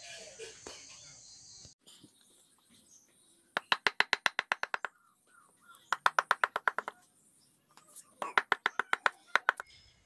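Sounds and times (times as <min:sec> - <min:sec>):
wooden mallet tapping gouge handle: 0:03.6 - 0:04.9, 0:05.9 - 0:07.0, 0:08.2 - 0:09.6.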